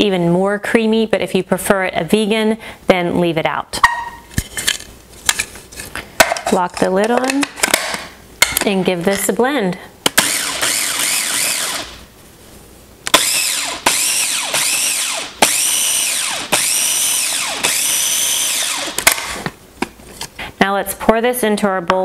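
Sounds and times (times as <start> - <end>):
food processor motor pulsing: 10.2 - 12.0, 13.1 - 19.4.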